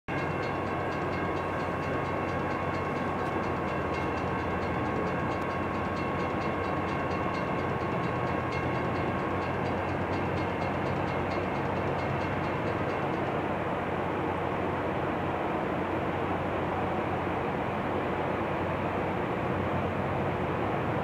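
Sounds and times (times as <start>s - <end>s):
high whine: 0.1s - 14.8s
rail grinder grinding roar: 0.1s - 21.0s.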